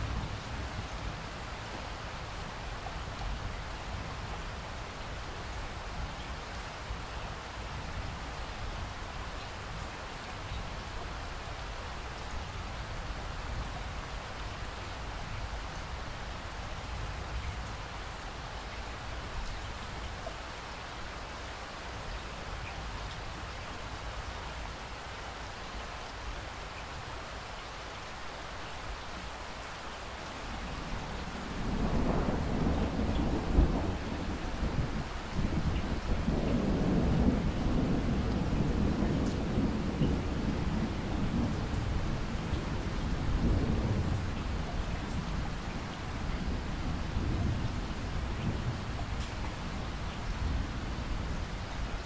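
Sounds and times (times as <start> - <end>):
steady rain falling: 0.0 - 52.0
low roll of thunder: 30.8 - 51.5.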